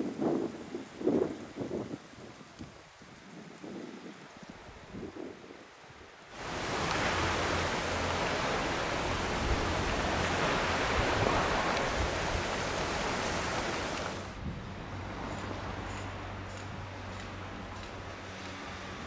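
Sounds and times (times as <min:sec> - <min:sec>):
wind buffeting microphone: 0:00.0 - 0:18.1
sea surf: 0:05.7 - 0:16.4.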